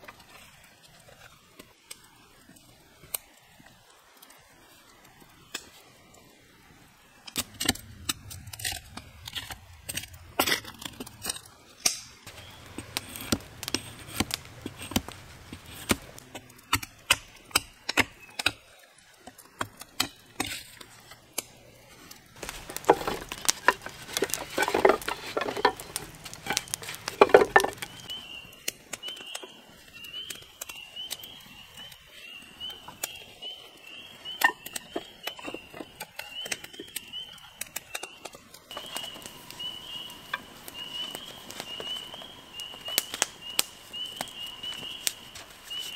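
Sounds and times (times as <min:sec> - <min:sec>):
scraping and rustling: 0:21.8 - 0:28.1.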